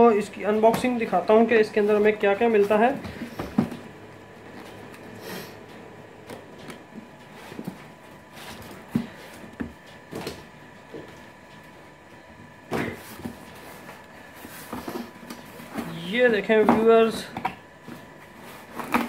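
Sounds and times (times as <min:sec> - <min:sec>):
cardboard rustling scrapes: 0:12.8 - 0:16.1, 0:17.9 - 0:19.0.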